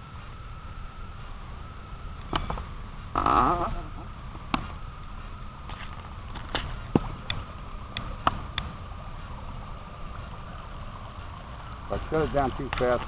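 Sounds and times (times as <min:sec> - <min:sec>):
model boat motor whine: 0:00.0 - 0:08.2.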